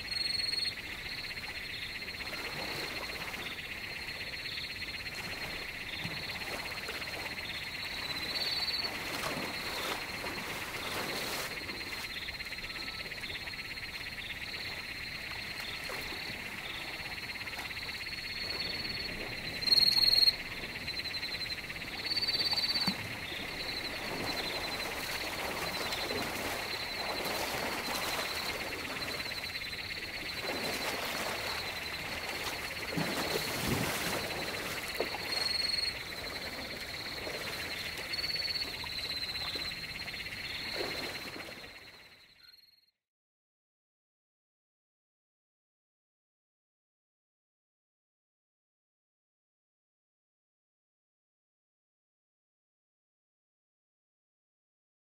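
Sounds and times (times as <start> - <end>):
frogs and insects calling: 0.0 - 42.9.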